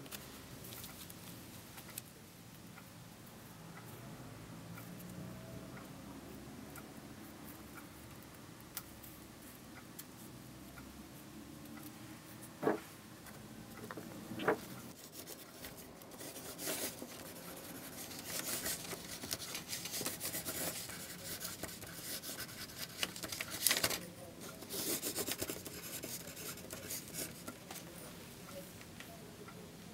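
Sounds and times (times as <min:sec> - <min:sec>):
pen scratching on paper: 0:14.4 - 0:23.4, 0:24.6 - 0:27.6.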